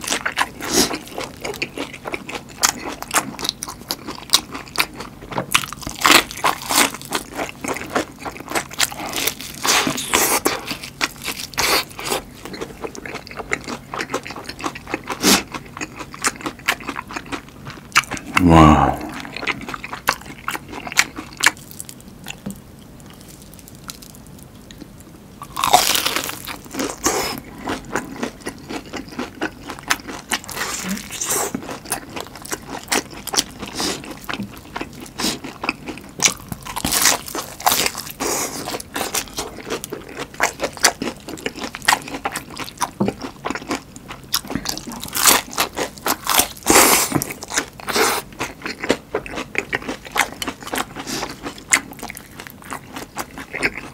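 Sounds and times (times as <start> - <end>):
crunching and chewing fried food: 0.0 - 53.9
wet mouth sounds: 18.0 - 19.8.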